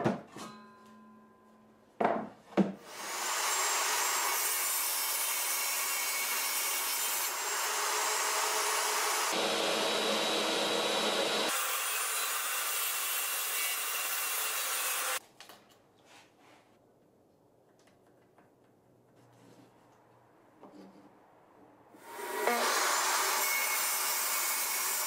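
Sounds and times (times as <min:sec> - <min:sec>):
table saw whining: 0:02.9 - 0:15.2, 0:22.0 - 0:25.0.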